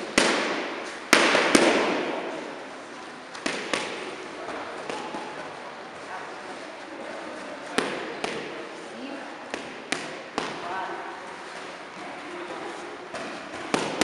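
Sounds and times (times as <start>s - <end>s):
boxing gloves hitting mitts: 0.0s - 2.2s, 3.3s - 5.4s, 7.8s - 8.6s, 9.5s - 10.7s, 13.1s - 14.0s.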